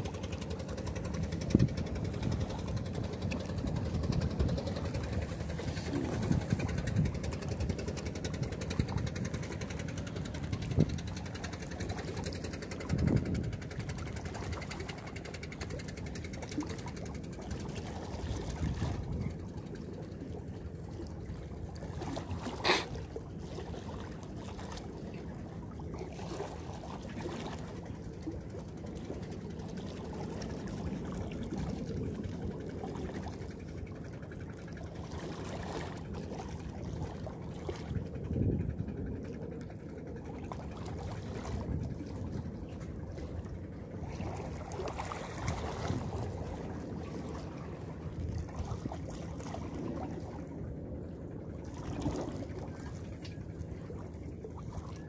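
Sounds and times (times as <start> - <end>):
low rumble: 0.0 - 11.0
seawater lapping among blocks: 0.0 - 55.0.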